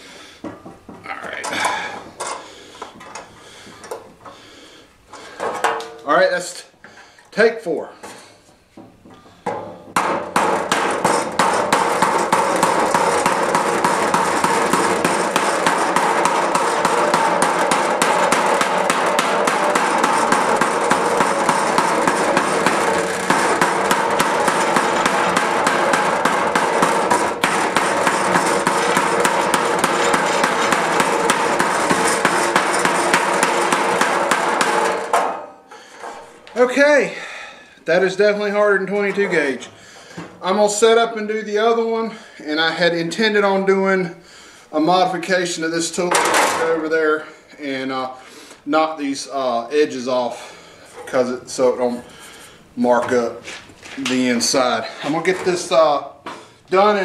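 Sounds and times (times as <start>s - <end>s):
hammer beating on metal tool: 9.4s - 36.2s.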